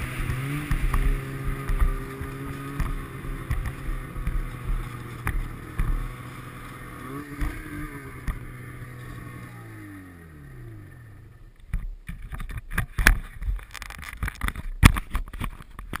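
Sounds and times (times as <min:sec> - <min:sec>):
snowmobile engine winding down: 0:00.0 - 0:11.6.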